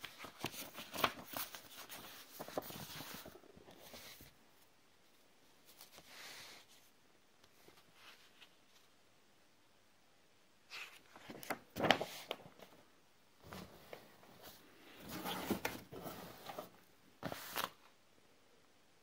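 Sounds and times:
paper rustling and crinkling: 0.0s - 4.4s, 10.7s - 12.8s, 13.4s - 17.9s.

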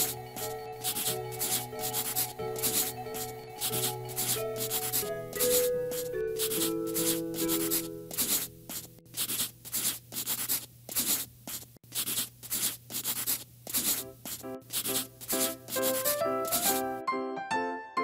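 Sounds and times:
background music: 0.0s - 8.8s, 14.0s - 18.0s
crayon scribbling on paper: 0.0s - 16.9s.

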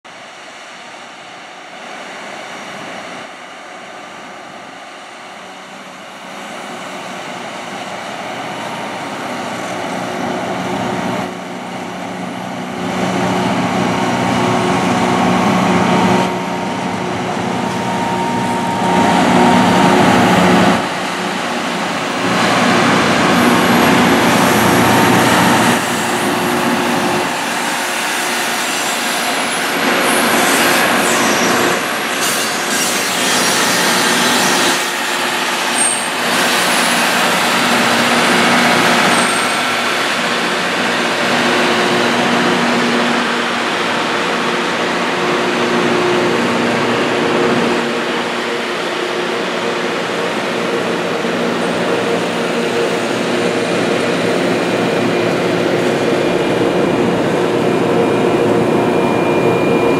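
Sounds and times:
train diesel engines humming: 0.1s - 59.9s
high held tone: 14.2s - 28.0s.

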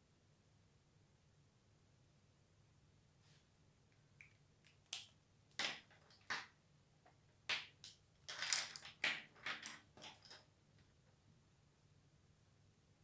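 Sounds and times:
art supplies rustling and clicking: 5.5s - 6.5s, 7.1s - 11.0s.

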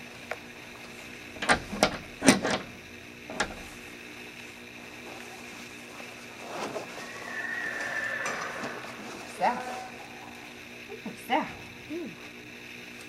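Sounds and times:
steady low hum: 0.0s - 13.0s
horse shifting against stall: 6.4s - 10.0s.

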